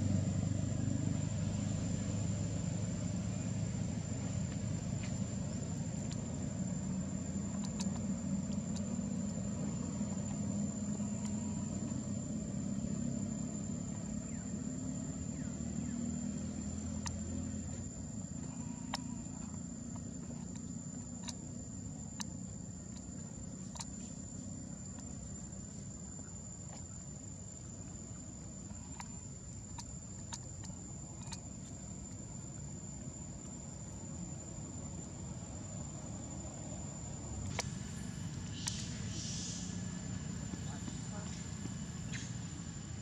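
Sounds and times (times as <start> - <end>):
sharp clicks: 7.5 - 9.0.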